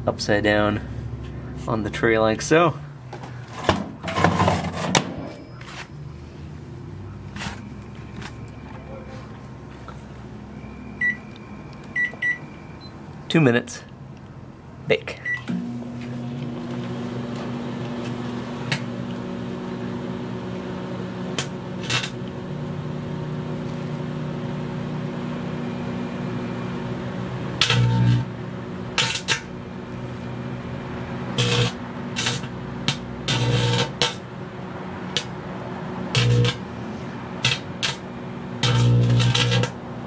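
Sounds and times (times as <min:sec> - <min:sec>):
microwave oven humming: 0:15.2 - 0:40.0
electric sparks crackling: 0:21.8 - 0:22.2, 0:31.4 - 0:32.5, 0:36.2 - 0:36.6, 0:37.4 - 0:38.0, 0:38.6 - 0:39.8.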